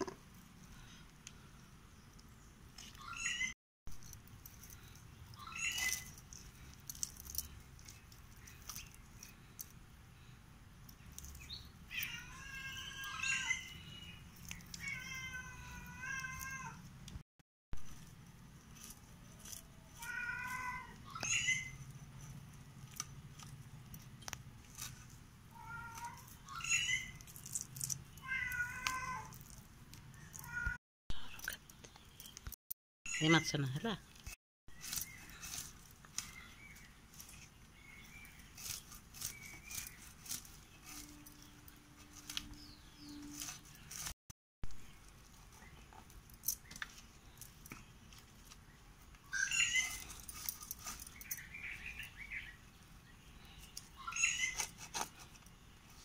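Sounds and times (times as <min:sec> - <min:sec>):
cat meowing: 0:14.8 - 0:16.8, 0:28.2 - 0:29.4.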